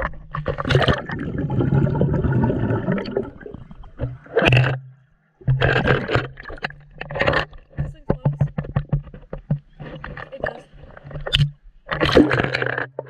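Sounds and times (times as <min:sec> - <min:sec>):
water splash: 0:00.0 - 0:04.8, 0:11.2 - 0:13.0
muffled underwater churning: 0:00.0 - 0:13.0.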